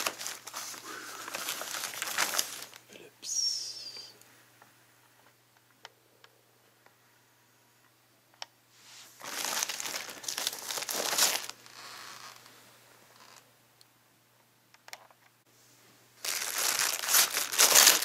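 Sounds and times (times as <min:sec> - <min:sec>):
plastic bag crinkling: 0:00.0 - 0:02.9, 0:09.2 - 0:12.4, 0:16.2 - 0:18.0.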